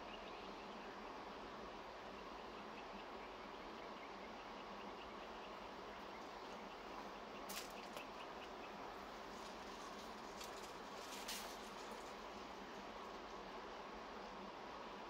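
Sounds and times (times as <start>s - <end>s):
background hiss: 0.0s - 15.0s
brief rustles: 9.4s - 12.2s.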